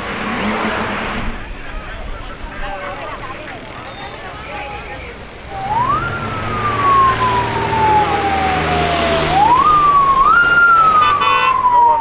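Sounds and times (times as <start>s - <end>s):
heavy traffic hum: 0.0s - 12.0s
emergency vehicle siren wailing: 4.5s - 12.0s.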